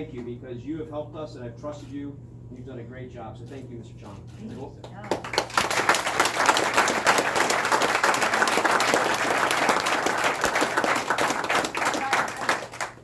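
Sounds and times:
people applauding: 5.0s - 13.0s.

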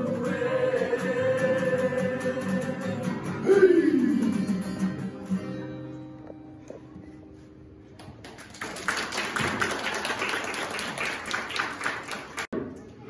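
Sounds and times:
group singing: 0.0s - 4.4s
strummed acoustic guitar: 0.0s - 7.8s.

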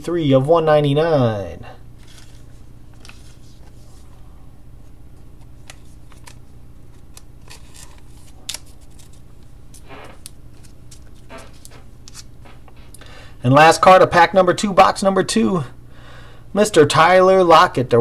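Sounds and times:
steady low hum: 0.0s - 18.0s
trading cards rustling and clicking: 2.0s - 4.1s, 5.2s - 13.0s.

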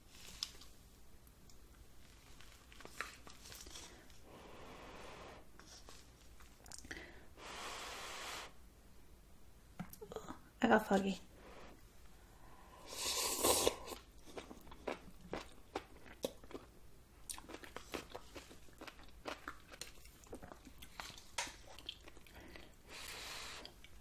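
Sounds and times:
person slurping noodles: 4.3s - 5.5s, 7.4s - 8.5s, 12.6s - 14.1s.

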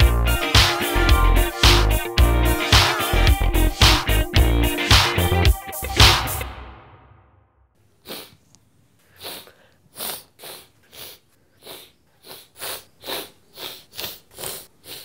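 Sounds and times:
man sniffing: 7.9s - 15.0s.

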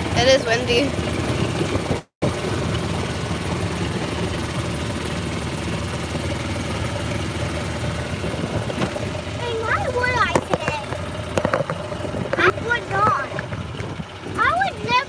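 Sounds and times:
vehicle driving with road noise: 0.0s - 15.0s
wind noise on microphone: 8.1s - 9.1s.

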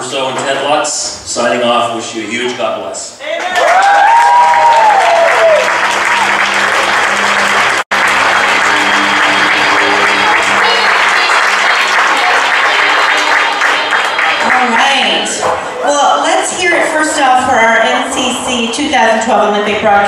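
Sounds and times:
cheers: 3.2s - 14.5s
audience applauding: 3.3s - 15.6s.

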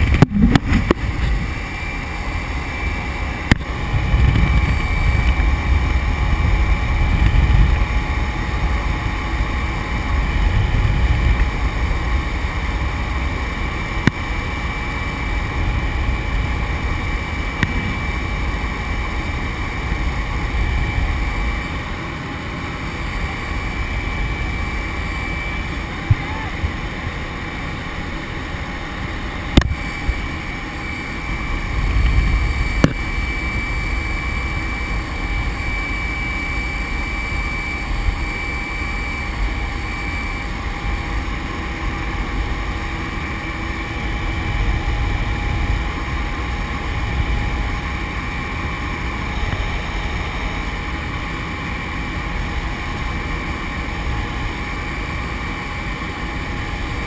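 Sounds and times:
wind rush: 0.0s - 13.3s
plane engine and propeller drone: 0.0s - 57.0s.

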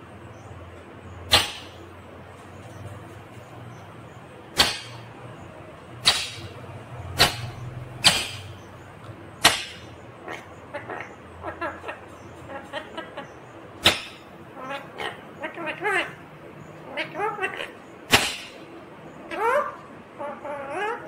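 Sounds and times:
soft parrot calls: 9.4s - 16.2s, 19.3s - 21.0s
parrot screeching: 19.3s - 21.0s.

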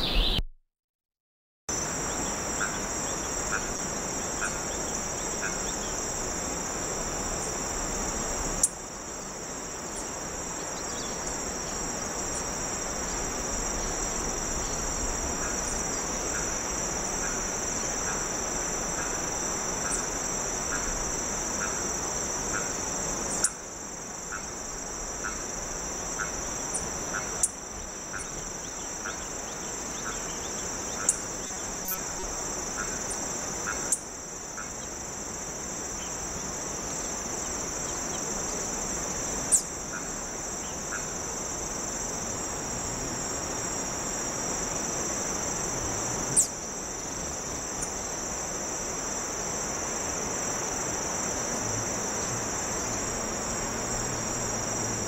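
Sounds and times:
constant hiss: 1.7s - 55.0s
high-pitched insect chorus: 1.7s - 55.0s.

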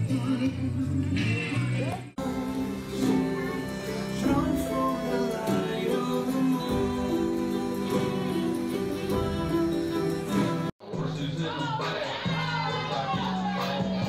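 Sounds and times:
instruments with held notes: 2.2s - 10.7s
person singing: 2.2s - 14.0s.

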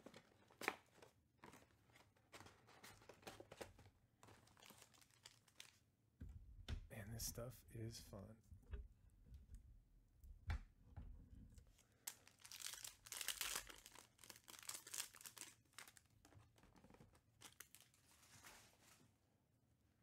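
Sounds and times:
foil wrapper tearing and crinkling: 3.0s - 5.8s, 11.8s - 18.2s.

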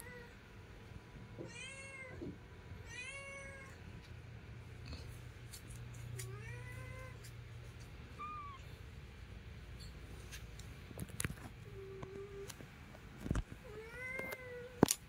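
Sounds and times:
newborn kittens mewing: 8.1s - 8.8s.

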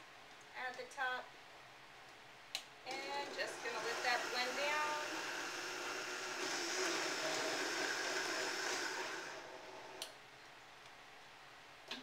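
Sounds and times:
blender running: 2.9s - 10.0s.

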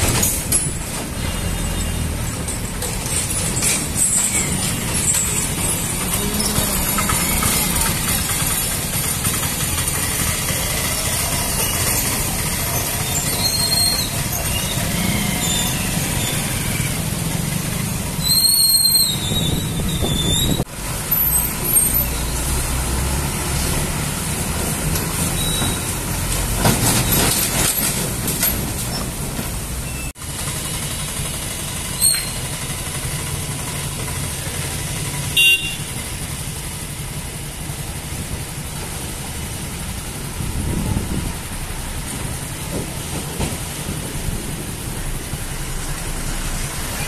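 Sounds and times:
heavy lorry engines running: 0.0s - 47.0s
road traffic: 0.0s - 47.0s
brief high squeal: 12.8s - 17.0s, 18.2s - 20.6s, 32.0s - 32.5s.

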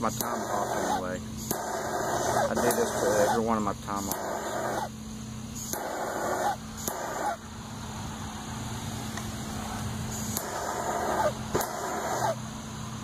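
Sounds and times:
propane torch burning: 0.0s - 5.0s, 5.6s - 7.5s, 9.1s - 12.4s
handling noise bursts: 10.1s - 12.4s.

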